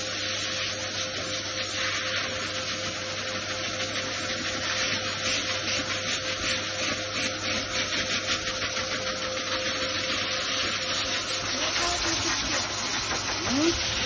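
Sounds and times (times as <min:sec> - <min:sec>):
dryer air rushing hiss: 0:00.0 - 0:14.0.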